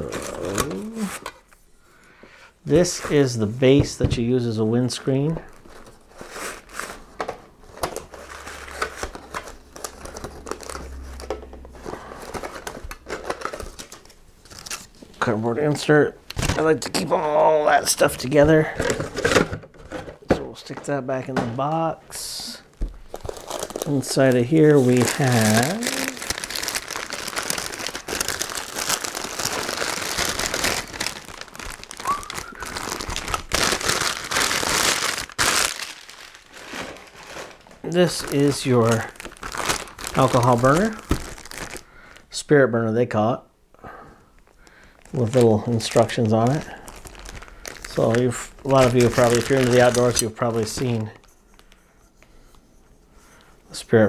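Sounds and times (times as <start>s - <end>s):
plastic wrapping crinkling: 5.3s - 15.2s, 22.6s - 42.2s, 44.3s - 51.8s
cardboard rustling: 23.0s - 41.8s, 45.0s - 51.7s.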